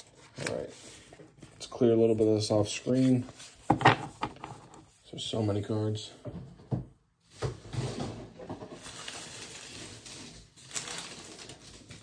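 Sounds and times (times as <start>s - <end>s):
cards rustling across a table: 0.0s - 5.0s.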